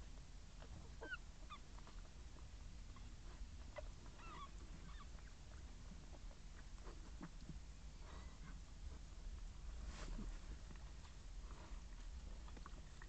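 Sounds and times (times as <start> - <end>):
puppies squeaking: 1.0 - 1.7, 3.7 - 5.4.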